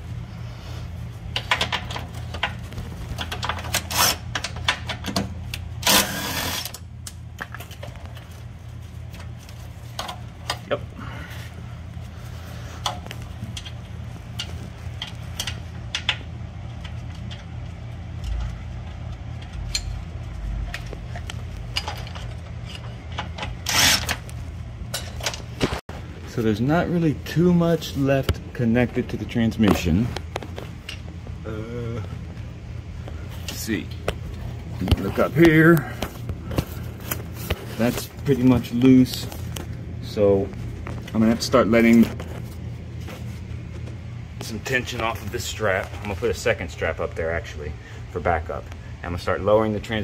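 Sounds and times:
steady low hum: 0.0s - 50.0s
tools clanking on metal: 21.7s - 24.2s.

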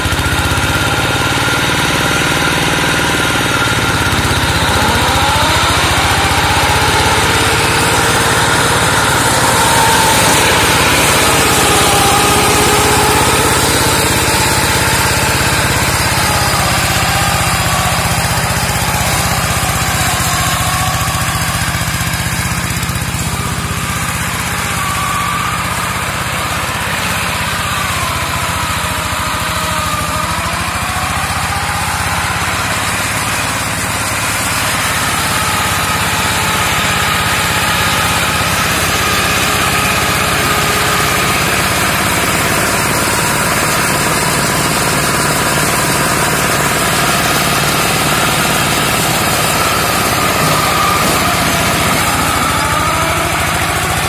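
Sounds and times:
hand tractor engine running: 0.0s - 54.0s.

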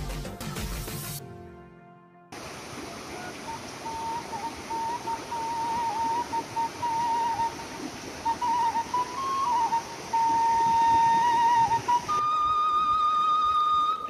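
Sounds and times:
river rapids rushing: 2.4s - 14.0s
flute-like melody: 3.1s - 14.0s.

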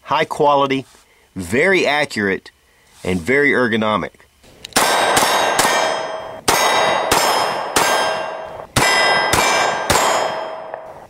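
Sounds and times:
pistol shots: 4.7s - 11.0s
steel plate clanging: 4.8s - 11.0s.

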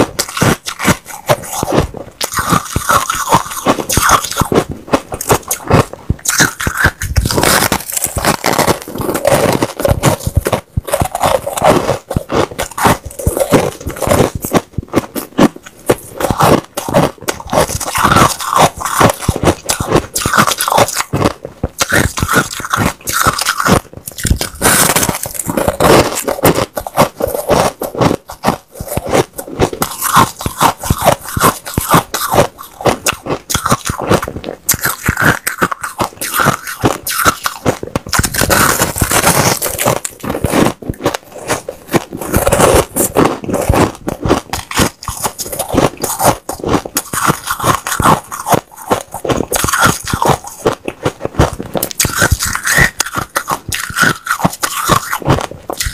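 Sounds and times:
ice being chewed: 0.0s - 55.9s.

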